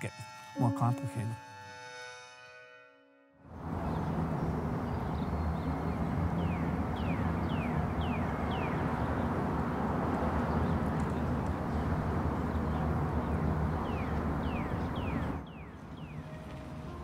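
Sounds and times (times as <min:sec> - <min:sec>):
traffic hum: 0:03.5 - 0:17.0
bird chirping: 0:03.8 - 0:09.4, 0:10.4 - 0:16.5.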